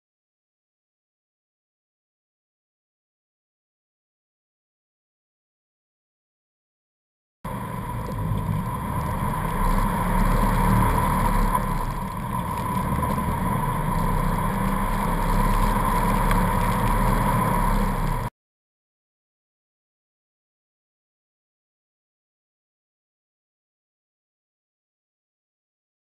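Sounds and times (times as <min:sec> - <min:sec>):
car engine rumble: 0:07.5 - 0:18.3
road and wind noise: 0:07.5 - 0:18.3
steady whine: 0:07.5 - 0:18.3.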